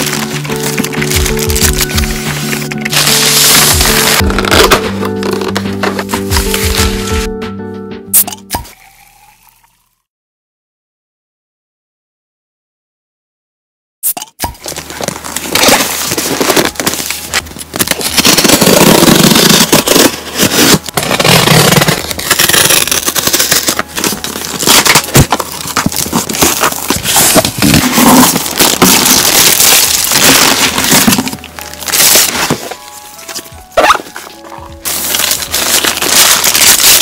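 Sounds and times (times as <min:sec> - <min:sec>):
box cutter slitting packing tape: 0:00.0 - 0:07.0, 0:14.0 - 0:32.8, 0:34.8 - 0:37.0
cardboard and plastic wrap crackling: 0:00.0 - 0:07.3, 0:14.6 - 0:37.0.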